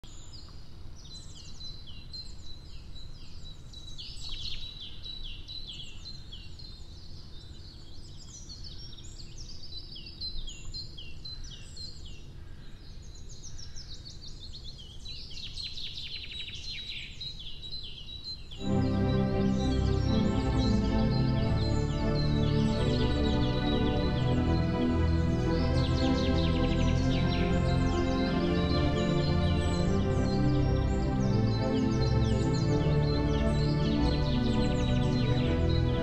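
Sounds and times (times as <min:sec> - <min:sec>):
birds chirping and singing: 0:18.5 - 0:36.0
music: 0:18.6 - 0:36.0.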